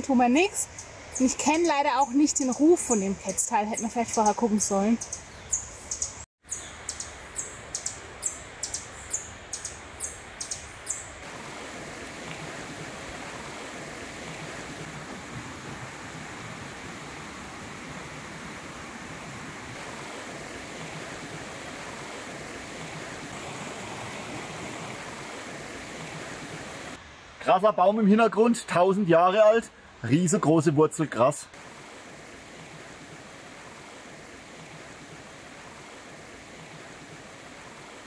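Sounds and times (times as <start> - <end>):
bird chirping: 0.6 - 11.2
flowing stream rushing: 7.6 - 38.0.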